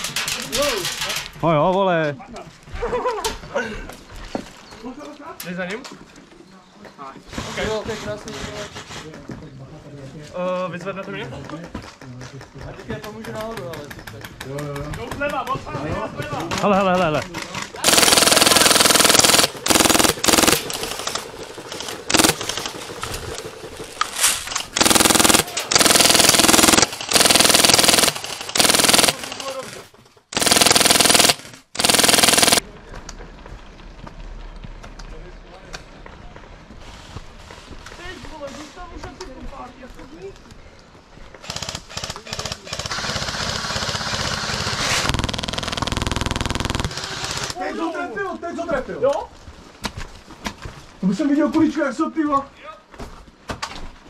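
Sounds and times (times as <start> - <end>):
airsoft gun automatic bursts: 17.8 - 29.7, 30.3 - 32.6, 41.4 - 47.6.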